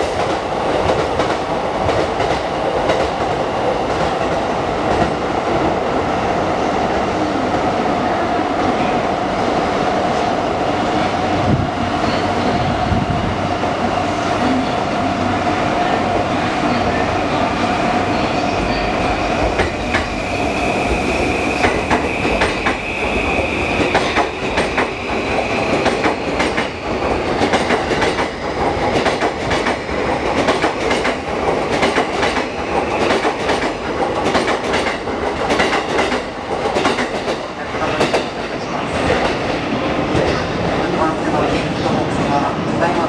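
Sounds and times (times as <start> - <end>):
train wheels clacking over rail joints: 23.8 - 38.4.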